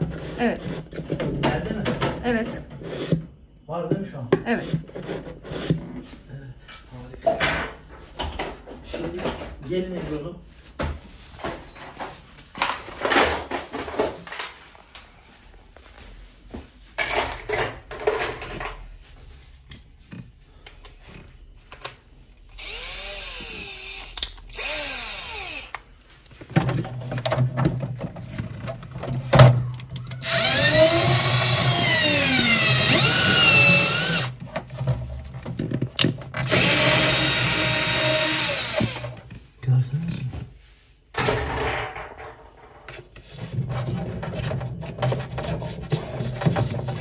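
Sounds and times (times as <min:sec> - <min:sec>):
electric drill drilling into plastic: 0:22.5 - 0:25.8, 0:30.0 - 0:34.4, 0:36.4 - 0:39.2.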